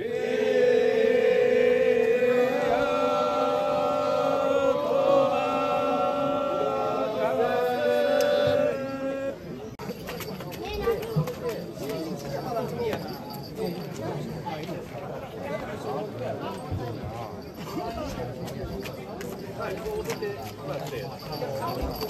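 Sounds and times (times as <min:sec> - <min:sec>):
men chanting in unison: 0:00.0 - 0:09.6.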